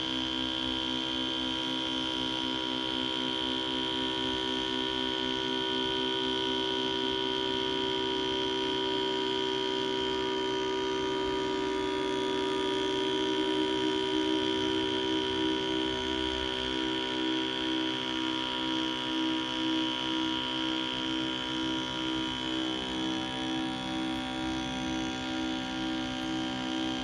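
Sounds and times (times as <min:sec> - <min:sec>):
synthesizer drone: 0:11.2 - 0:19.5, 0:20.4 - 0:27.0.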